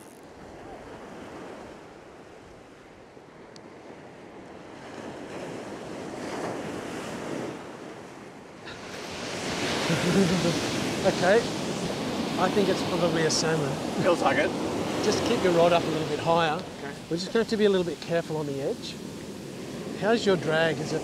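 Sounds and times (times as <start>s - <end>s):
ocean surf breaking on beach: 0.0s - 21.0s.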